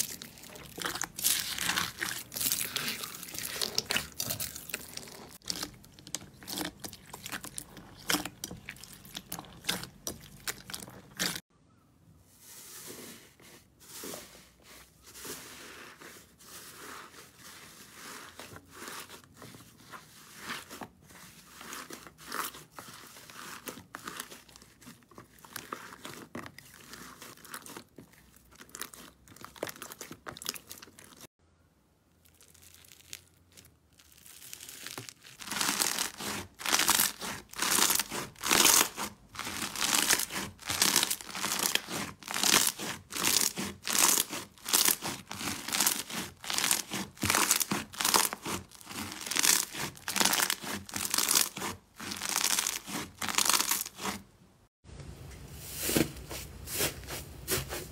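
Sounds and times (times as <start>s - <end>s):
slime crackling and popping: 0.0s - 11.4s, 32.2s - 54.1s.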